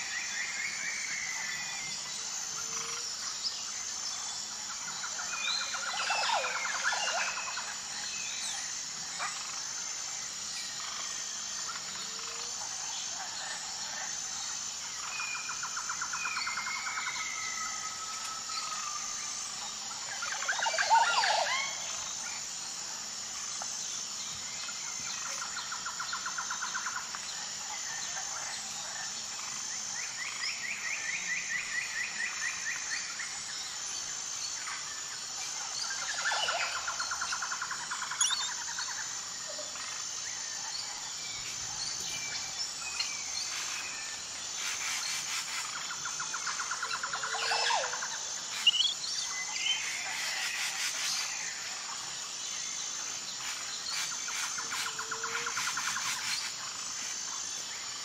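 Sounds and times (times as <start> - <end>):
insects chirping: 0.0 - 58.0
birds trilling and whistling: 35.6 - 40.0, 40.6 - 51.4.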